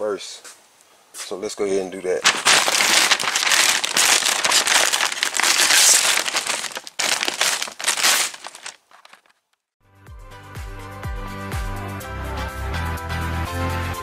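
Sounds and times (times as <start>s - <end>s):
masking paper crinkling and tearing: 2.2s - 9.4s.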